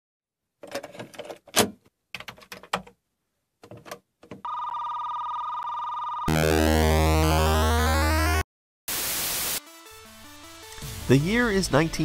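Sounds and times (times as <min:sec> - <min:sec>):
buzzy electronic tone: 0:06.3 - 0:08.5.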